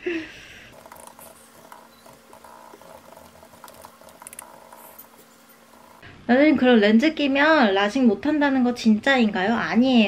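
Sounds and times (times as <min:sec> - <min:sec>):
faint steady hum: 0:00.0 - 0:10.0
keyboard typing clicks: 0:00.8 - 0:05.2.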